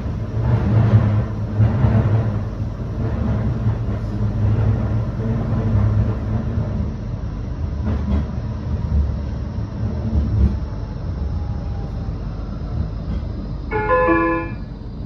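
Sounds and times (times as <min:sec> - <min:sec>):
tram rumbling on rails: 0:00.0 - 0:15.0
multi-tone electronic chime: 0:13.7 - 0:14.6.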